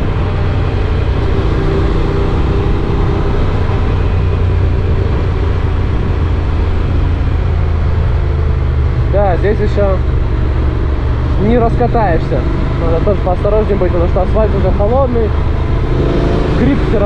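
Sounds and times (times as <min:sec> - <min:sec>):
wind noise on microphone: 0:00.0 - 0:09.0
motorcycle engine rumble: 0:00.0 - 0:17.0.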